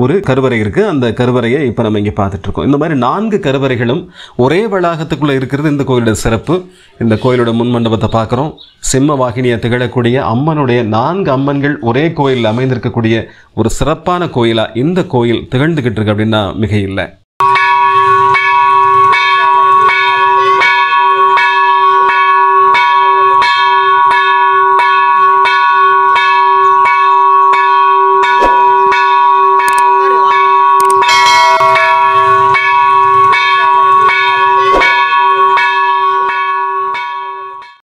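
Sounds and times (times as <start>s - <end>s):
temple bell ringing: 17.4s - 37.8s.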